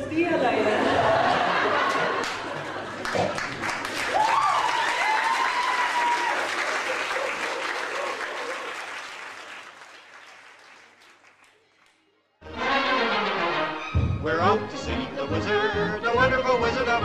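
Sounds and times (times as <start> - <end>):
audience applauding: 1.4 - 13.8
person cheering: 4.1 - 6.6.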